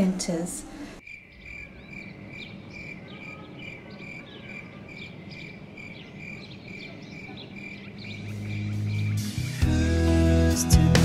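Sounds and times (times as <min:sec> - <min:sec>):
insects chirping: 0:01.0 - 0:09.3
music: 0:08.2 - 0:11.0.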